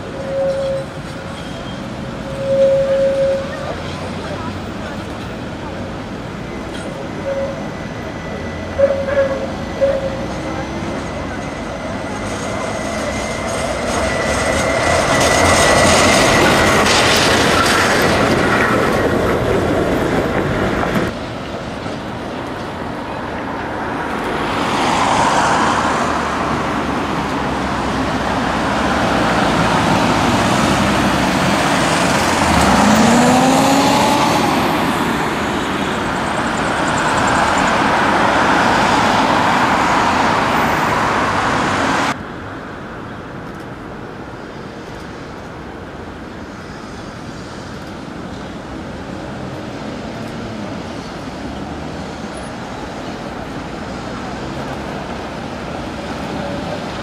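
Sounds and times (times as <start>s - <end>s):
tram rolling away: 0.0s - 43.0s
bus passing: 0.0s - 57.0s
distant street noise: 0.0s - 57.0s
road traffic: 0.0s - 57.0s
rising whine: 28.9s - 41.4s.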